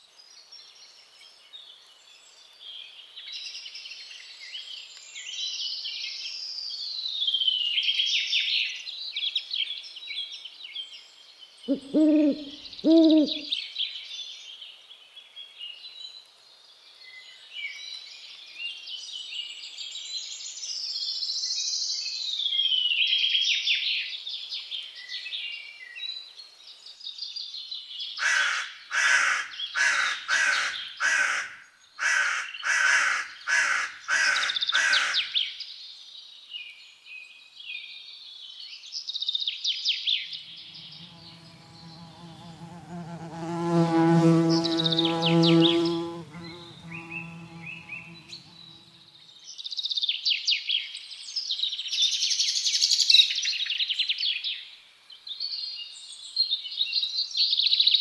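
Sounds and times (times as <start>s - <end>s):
birds chirping and trilling: 11.7s - 13.5s, 40.6s - 49.1s
crow cawing: 11.7s - 13.5s, 28.2s - 35.2s.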